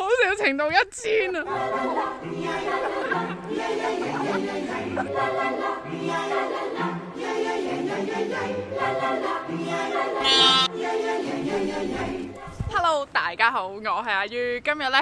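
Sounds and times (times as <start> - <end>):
voices singing sustained chords: 1.3 - 12.4.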